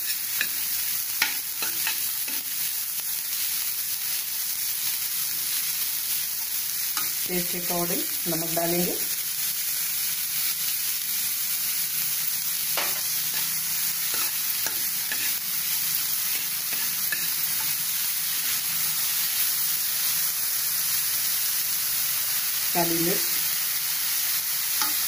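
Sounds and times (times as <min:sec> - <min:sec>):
spatula scraping a pan: 0:00.0 - 0:02.6, 0:12.8 - 0:15.4, 0:16.2 - 0:18.6
vegetables sizzling in a pan: 0:00.0 - 0:25.0.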